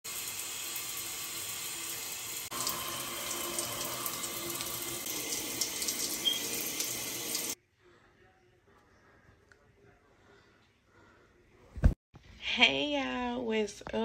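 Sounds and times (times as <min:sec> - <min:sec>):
shower water spraying: 0:00.1 - 0:07.6.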